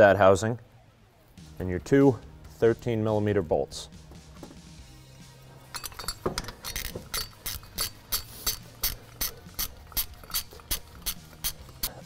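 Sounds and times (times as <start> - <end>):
ratchet wrench clicking: 5.7 - 12.0.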